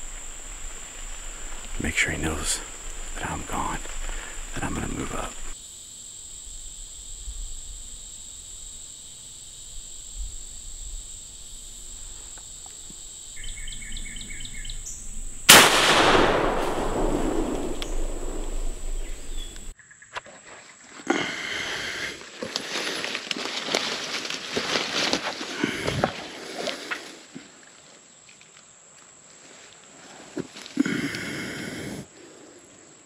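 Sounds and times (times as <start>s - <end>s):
shotgun shot echoing: 15.5s - 19.7s.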